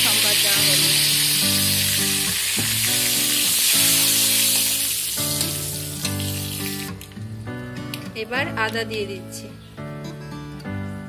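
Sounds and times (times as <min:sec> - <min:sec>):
spices sizzling in hot oil: 0:00.0 - 0:07.2
background music with held notes: 0:00.0 - 0:11.0.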